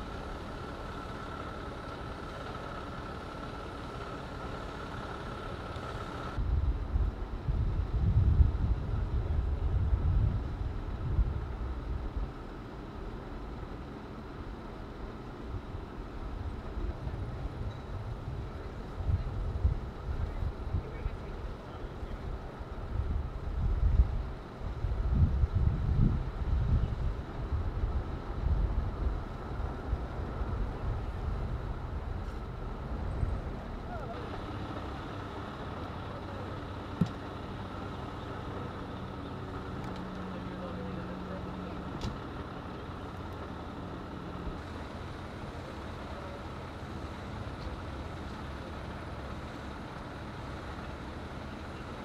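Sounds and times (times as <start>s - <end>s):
street traffic passing: 0.0s - 52.0s
vehicle engines rumbling: 0.0s - 52.0s
wind buffeting microphone: 6.3s - 12.5s, 22.1s - 34.1s.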